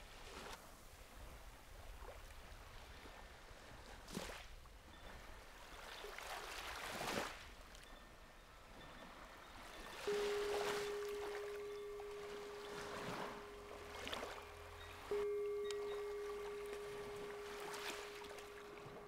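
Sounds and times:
small waves washing onto shore: 0.0s - 7.8s, 9.0s - 19.0s
singing bowl ringing: 9.7s - 19.0s.

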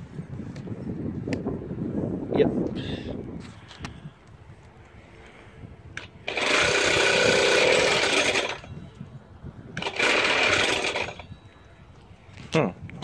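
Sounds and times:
scooter engine cranking: 6.0s - 8.8s, 9.8s - 11.3s.

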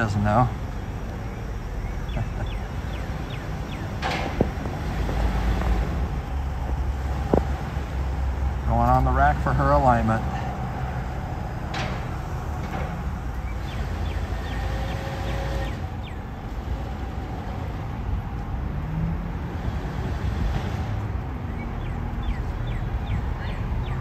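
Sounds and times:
car engine idling: 0.0s - 18.6s.

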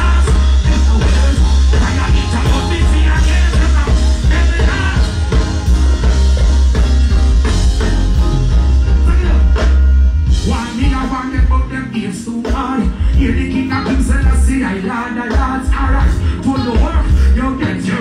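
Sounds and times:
person singing: 0.0s - 5.8s, 10.4s - 18.0s
heavy bass line: 0.0s - 18.0s
live reggae band: 0.0s - 18.0s.

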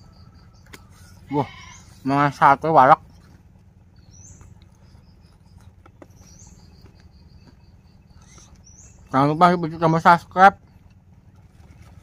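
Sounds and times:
bird calling high pips: 0.0s - 11.1s
faint chewing and crunching: 3.0s - 9.2s, 10.6s - 12.0s.

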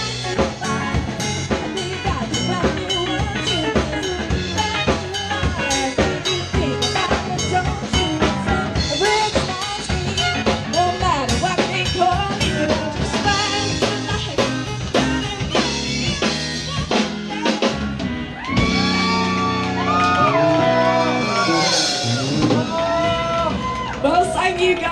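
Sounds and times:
woman singing: 0.0s - 17.8s
drum kit: 0.0s - 24.9s
electric guitar: 0.0s - 24.9s.

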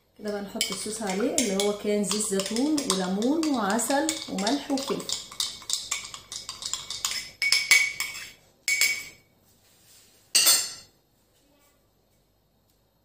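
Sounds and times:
spoon clinking against dish: 0.6s - 9.2s, 10.4s - 10.9s.

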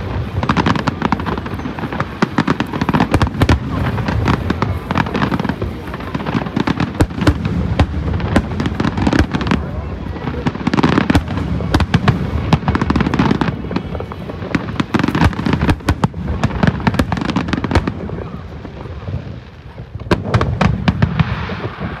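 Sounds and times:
fireworks bursts and bangs: 0.0s - 22.0s.

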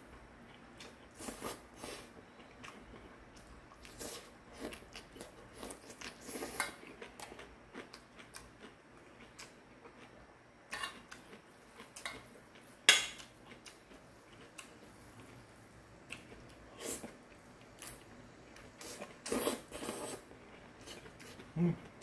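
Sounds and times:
soft chewing: 0.1s - 22.0s.

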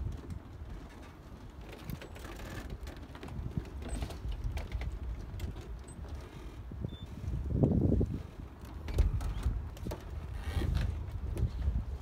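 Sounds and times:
wind rumble on microphone: 0.0s - 12.0s
footsteps on wooden dock: 7.7s - 12.0s.

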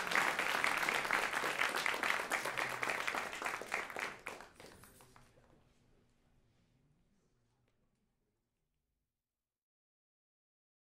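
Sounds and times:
audience applauding: 0.0s - 5.3s.

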